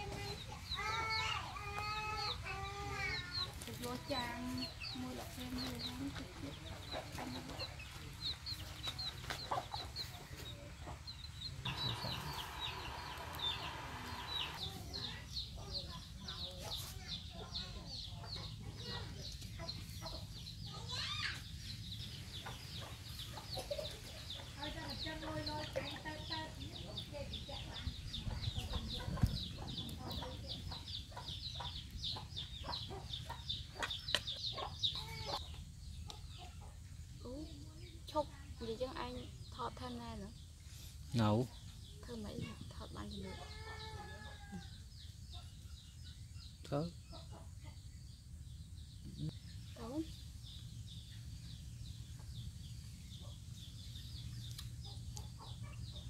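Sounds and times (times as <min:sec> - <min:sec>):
chicks peeping: 0:00.0 - 0:37.9, 0:41.1 - 0:56.0
steady hiss: 0:11.7 - 0:14.6.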